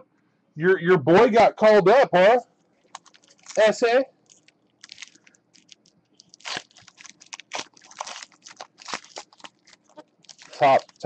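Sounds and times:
wrapper crinkling: 2.6s - 11.0s
cards being handled: 2.8s - 11.0s.

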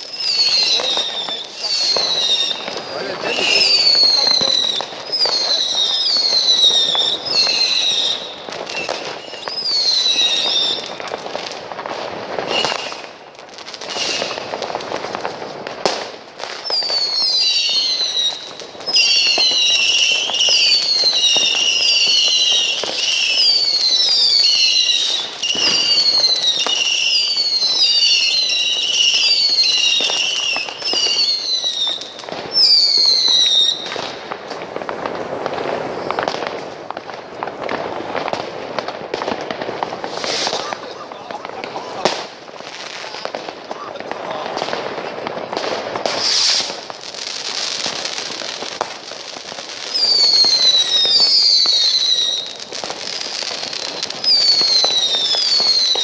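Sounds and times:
firework whistles falling: 0.0s - 11.1s, 12.3s - 13.2s, 13.8s - 14.6s, 15.8s - 36.5s, 37.6s - 40.8s, 45.7s - 56.0s
firework bangs and crackle: 0.0s - 56.0s.

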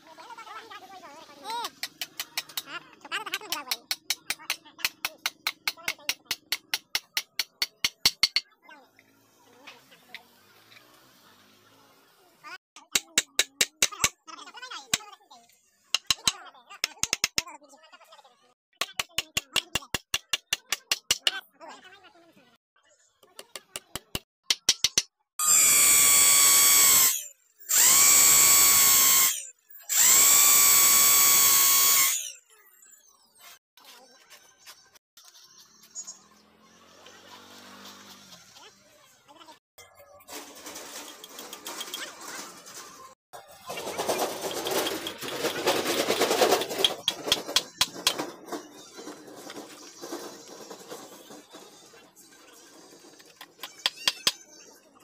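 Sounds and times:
electric drill whine: 25.4s - 32.4s
clattering noise: 40.2s - 54.4s.

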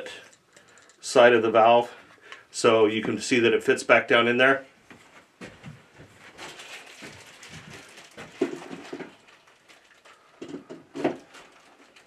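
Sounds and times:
plastic packaging rustling: 5.9s - 12.0s
plastic parts knocking: 7.0s - 12.0s.

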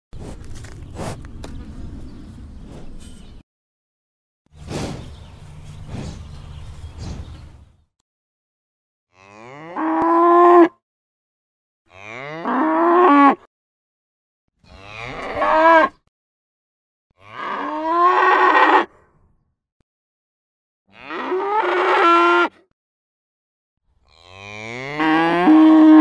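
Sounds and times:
cow mooing: 9.1s - 10.7s, 11.9s - 13.5s, 14.7s - 16.0s, 17.2s - 18.9s, 20.9s - 22.6s, 24.1s - 26.0s.

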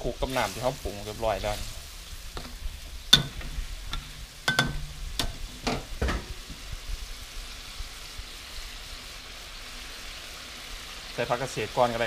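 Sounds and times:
sauce sizzling: 0.0s - 12.0s
metal spatula scraping a wok: 0.2s - 5.9s.

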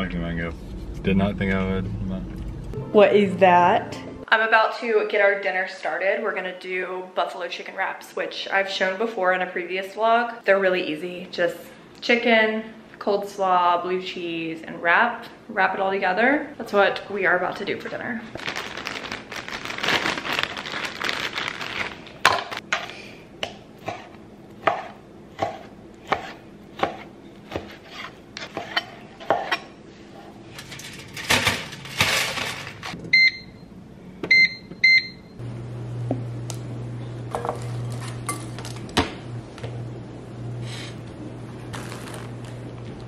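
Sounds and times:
microwave oven humming: 29.6s - 43.0s
electronic keypad beeps: 34.3s - 35.3s.

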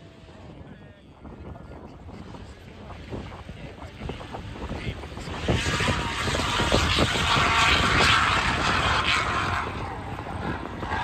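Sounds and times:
motor vehicle passing by: 5.4s - 11.0s.

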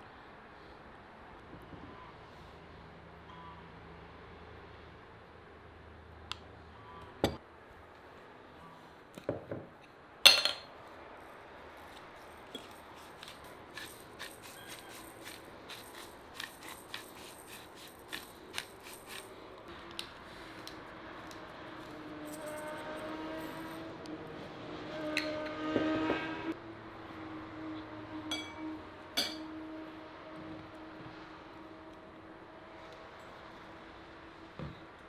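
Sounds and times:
pepper mill grinding: 11.8s - 22.7s
spoon clinking on dishes: 12.5s - 12.8s, 28.3s - 28.6s, 29.2s - 29.4s.

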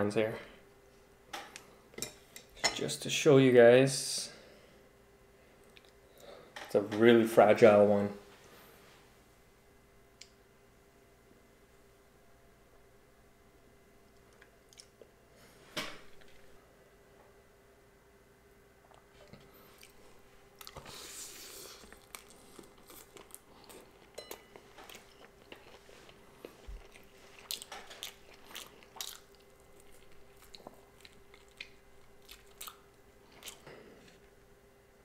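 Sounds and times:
mouth chewing clicks and smacks: 14.1s - 15.1s, 26.4s - 33.7s
biting into sushi: 20.6s - 24.0s, 24.8s - 34.2s.

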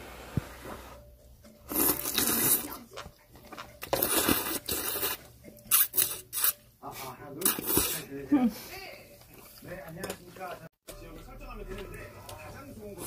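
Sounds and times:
person slurping noodles: 1.7s - 2.8s, 3.9s - 6.6s.

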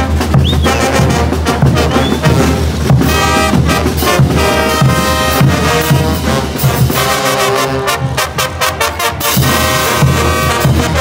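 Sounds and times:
bass drums and cymbals: 0.0s - 7.6s
trumpets and trombones: 0.0s - 11.0s.

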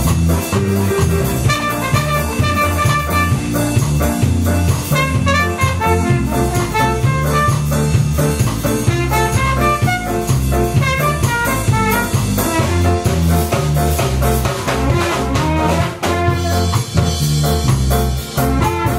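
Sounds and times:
keyboard: 0.0s - 16.0s
bass line: 0.0s - 18.9s
drum kit: 0.0s - 18.9s
trumpet melody: 0.4s - 4.0s, 4.8s - 8.1s, 8.7s - 13.6s, 14.6s - 17.1s, 18.4s - 18.9s.

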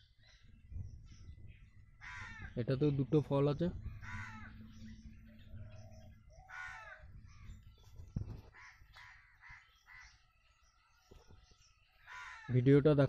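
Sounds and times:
crows cawing: 2.0s - 2.7s, 3.7s - 7.6s, 8.3s - 10.4s, 11.9s - 12.8s.

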